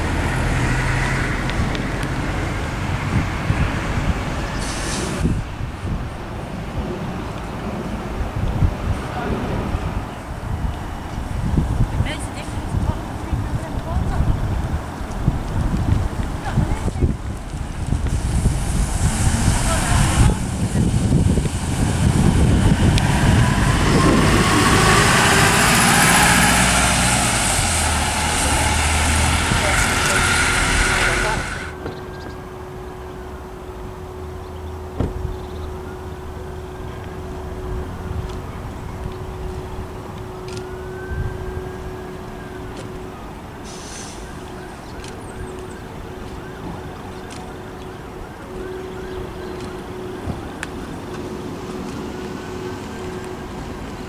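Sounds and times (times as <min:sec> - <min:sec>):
bus engine hum: 0:00.0 - 0:54.0
bus tyre noise: 0:00.0 - 0:54.0
air hiss: 0:04.5 - 0:05.5, 0:18.0 - 0:20.2, 0:43.6 - 0:44.4.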